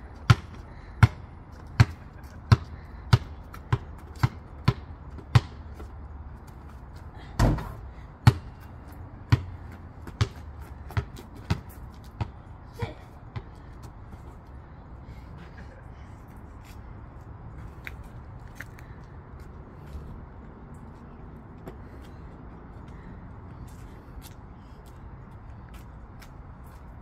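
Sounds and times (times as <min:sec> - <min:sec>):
basketball bouncing on concrete: 0:00.2 - 0:05.9, 0:07.4 - 0:12.4, 0:13.3 - 0:14.2.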